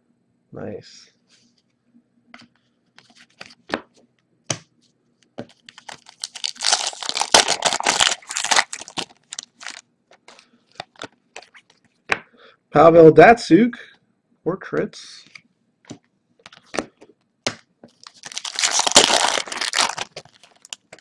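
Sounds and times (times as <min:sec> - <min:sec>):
wrapper crackling tear: 0:05.7 - 0:11.8, 0:18.0 - 0:21.0.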